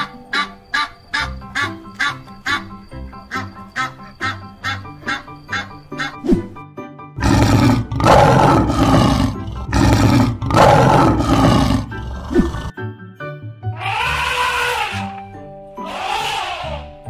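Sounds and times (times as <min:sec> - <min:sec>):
bouncy children's music: 0:00.0 - 0:07.2, 0:12.8 - 0:17.0
lion roar: 0:07.2 - 0:12.7.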